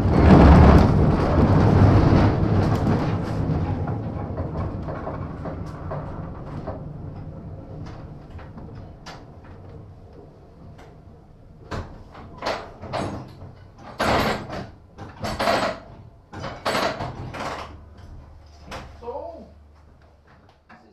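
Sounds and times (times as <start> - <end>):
loud clattering bursts: 0.0 - 9.3, 11.8 - 18.8
tram low hum: 0.0 - 13.8, 17.0 - 20.9.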